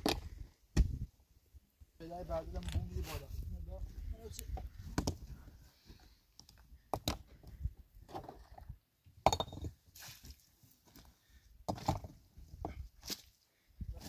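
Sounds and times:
hard objects knocking and clinking: 9.2s - 9.7s.

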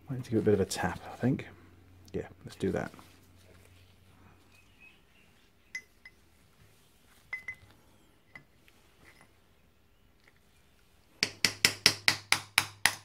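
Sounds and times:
faint ringing metallic clinks: 5.6s - 6.3s, 7.2s - 9.5s.

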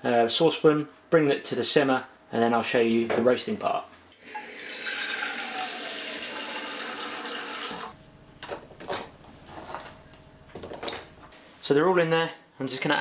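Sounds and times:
tap water filling a saucepan: 4.3s - 7.9s.

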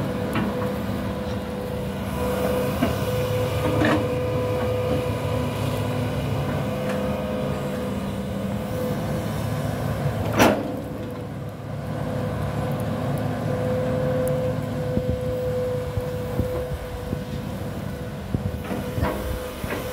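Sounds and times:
excavator engine running: 0.0s - 19.9s
hydraulic whine: 13.5s - 19.9s.

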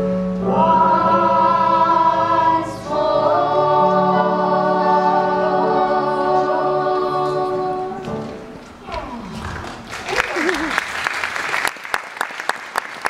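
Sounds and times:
man and children singing: 0.4s - 8.3s.

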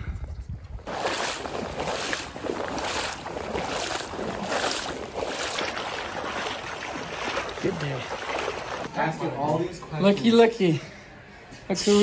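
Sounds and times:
person wading through water: 0.8s - 8.9s.

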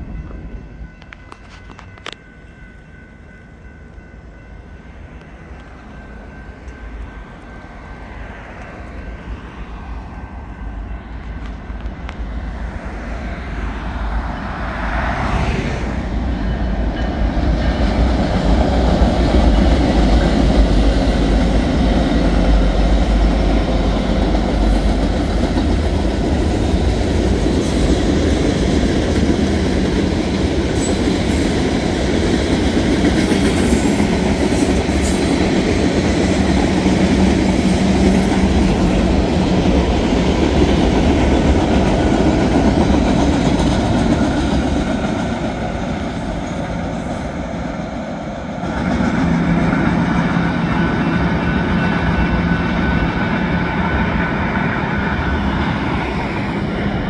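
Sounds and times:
diesel locomotives rumbling: 0.0s - 57.0s
train wheels clacking on rails: 16.1s - 57.0s.

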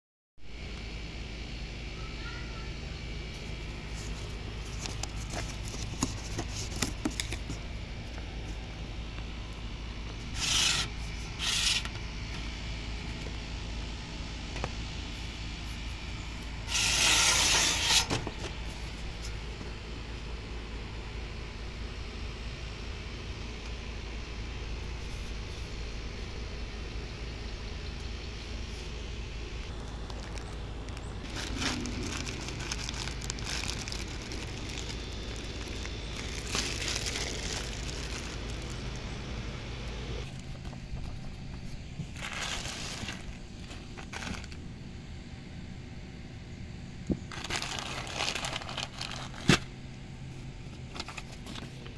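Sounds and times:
steady low rumble: 0.4s - 17.0s, 18.2s - 51.9s
metal panel scraping: 16.7s - 18.2s
plastic bag of screws crinkling: 29.7s - 39.0s, 42.2s - 44.6s, 47.3s - 49.5s.

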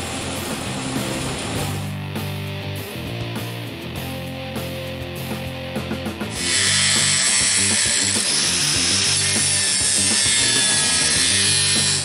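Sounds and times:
background music with steady beat: 0.0s - 12.0s
angle grinder grinding steel: 6.3s - 12.0s.

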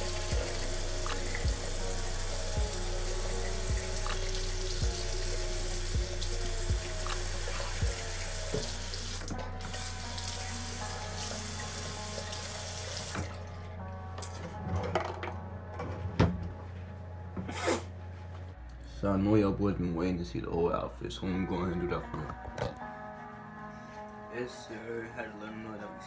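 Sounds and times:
tap running into a sink: 8.5s - 8.8s.

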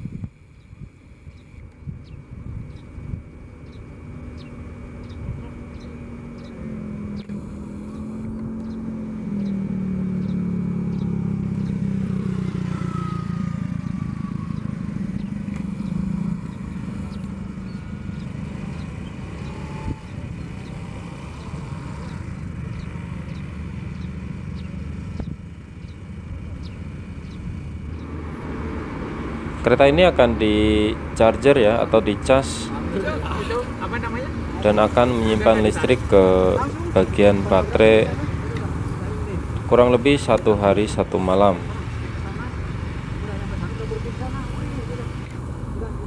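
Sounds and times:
whine gliding in pitch: 12.1s - 18.9s.

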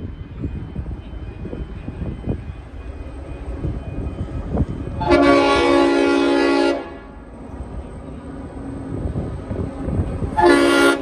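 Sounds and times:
train horn blast: 5.0s - 7.2s, 10.3s - 11.0s.

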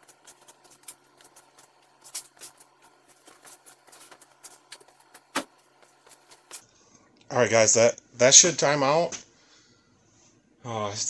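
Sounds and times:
footsteps: 0.0s - 6.6s
faint steady hum: 0.0s - 11.0s.

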